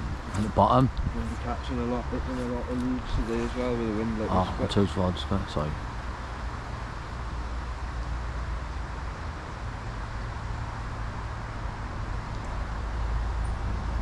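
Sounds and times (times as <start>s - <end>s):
wind buffeting microphone: 0.0s - 6.1s.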